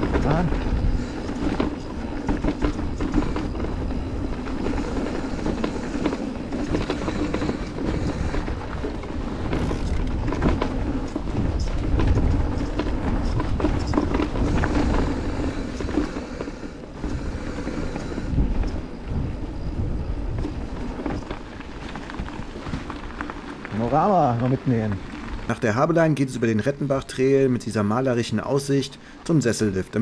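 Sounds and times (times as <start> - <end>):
bike rattling over bumps: 0.0 - 30.0
tyres rolling on gravel: 0.0 - 30.0
wind rumbling on microphone: 0.0 - 30.0.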